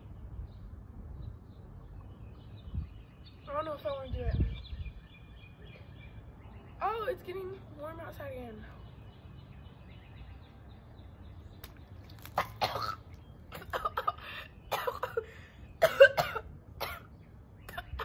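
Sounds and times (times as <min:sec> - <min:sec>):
woman coughing: 0:12.4 - 0:13.0, 0:13.6 - 0:17.1.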